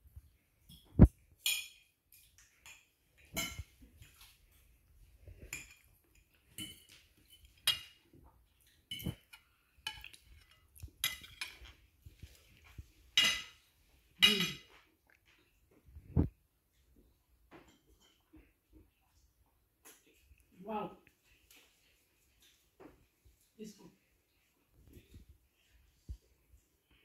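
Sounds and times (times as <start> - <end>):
cutlery clinking on plates: 0.6 - 4.4, 5.4 - 11.9, 12.6 - 14.9, 17.5 - 18.4.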